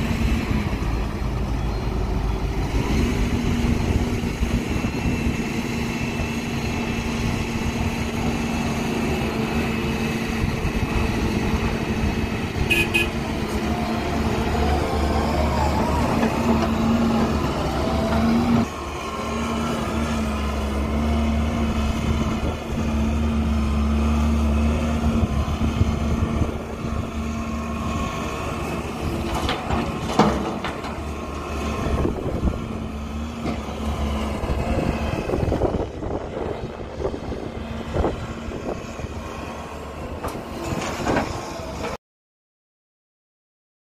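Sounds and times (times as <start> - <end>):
diesel excavators droning: 0.0 - 42.0
knocks and clatter: 29.2 - 31.1.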